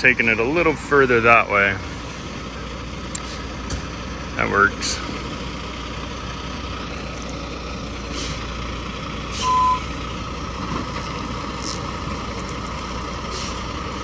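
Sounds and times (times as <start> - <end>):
diesel truck engine running: 0.0 - 14.0
reversing alarm beep: 9.4 - 9.9.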